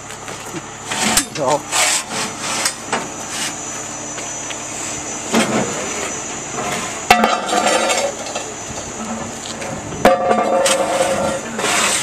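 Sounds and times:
fire truck engine running: 0.0 - 12.0
metal pad clanking on pavement: 5.3 - 12.0.

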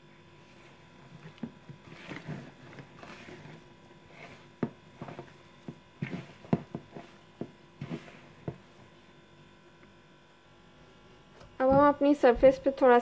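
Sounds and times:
hand squishing dough: 0.3 - 9.3.

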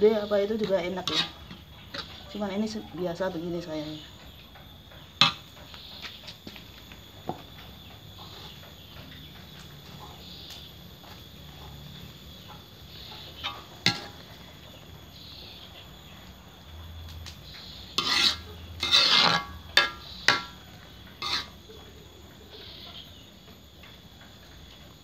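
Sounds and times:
ladle scraping a wok: 0.9 - 2.2, 13.3 - 14.3, 17.6 - 21.6.

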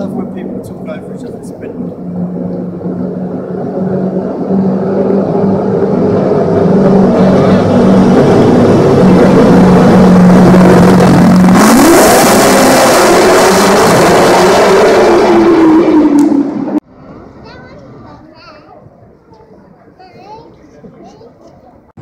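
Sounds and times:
car engine revving: 0.0 - 16.8.

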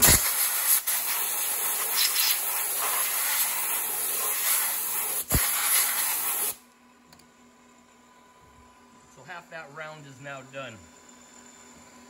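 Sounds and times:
air blow gun hissing: 0.0 - 6.6.

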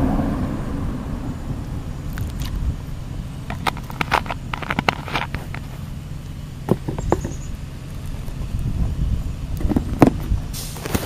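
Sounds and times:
steady low rumble: 0.0 - 11.0
camera handling knocks and rubbing: 3.5 - 5.8, 6.6 - 7.4.

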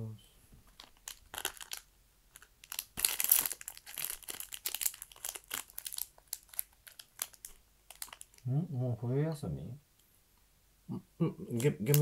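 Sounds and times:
plastic wrapper crinkling: 0.7 - 8.5.

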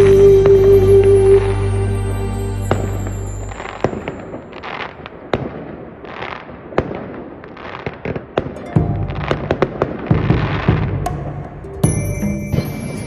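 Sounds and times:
background music: 0.0 - 4.4, 8.6 - 13.0
fireworks hissing bursts: 0.0 - 11.0
fireworks bangs and crackles: 2.6 - 13.0.

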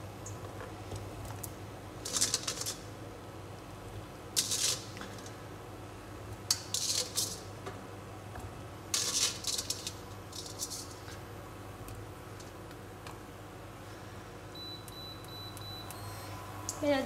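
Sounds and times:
steady low hum: 0.0 - 17.0
scraping and clattering in pot: 8.9 - 11.2.

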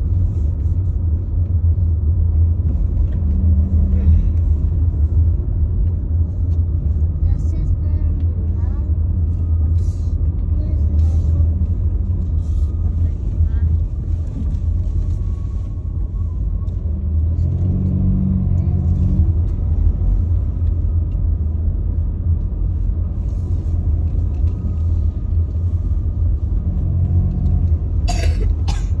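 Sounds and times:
car cabin road and engine noise: 0.0 - 29.0.

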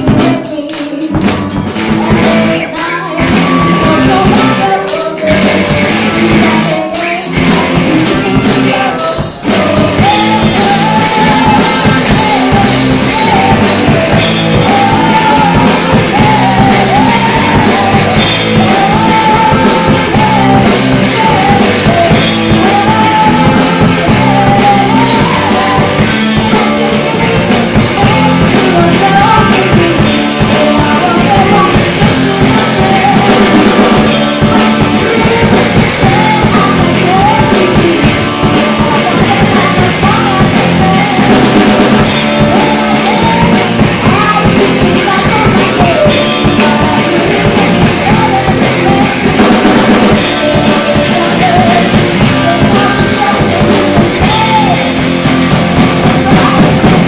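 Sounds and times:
bass guitar: 0.0 - 57.0
drum kit: 0.0 - 57.0
electric guitar: 0.0 - 57.0
girl singing into a microphone: 0.0 - 57.0.

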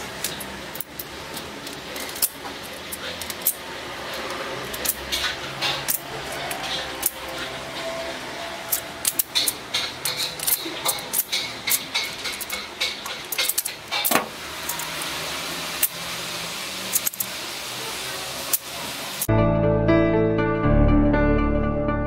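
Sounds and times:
plastic puzzle pieces clicking: 0.2 - 3.6, 4.6 - 7.2, 8.7 - 14.8, 16.9 - 17.3
music: 19.3 - 22.0.

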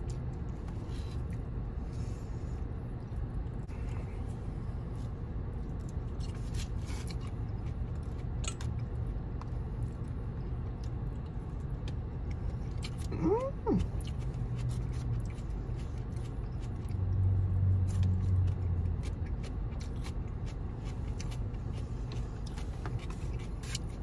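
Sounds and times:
low car cabin hum: 0.0 - 24.0
chewing: 5.0 - 24.0.

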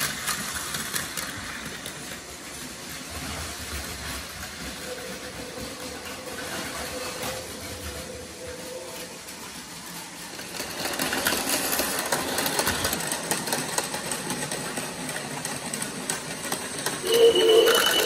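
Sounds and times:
toy train motor whir: 0.0 - 18.0
wheel and rail clicks: 0.0 - 18.0
pitched tone: 17.0 - 18.0.

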